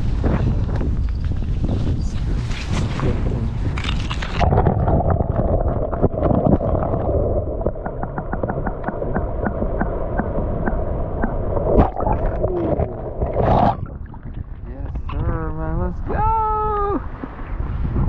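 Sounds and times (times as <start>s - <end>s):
low watery rumble underwater: 0.0s - 15.9s
small clicks and knocks underwater: 3.7s - 7.0s, 7.6s - 12.4s.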